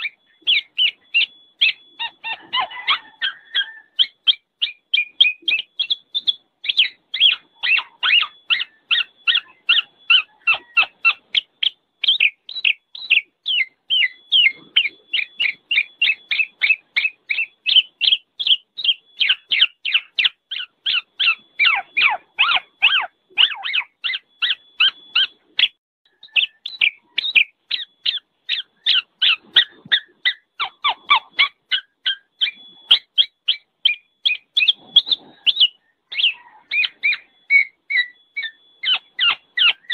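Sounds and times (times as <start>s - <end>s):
bird chattering call: 0.0s - 39.9s.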